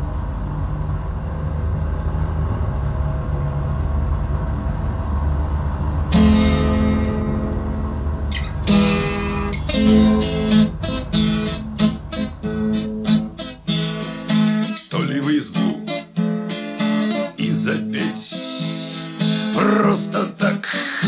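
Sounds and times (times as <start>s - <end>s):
low steady rumble: 0.0s - 12.8s
acoustic guitar strumming chords: 6.1s - 20.9s.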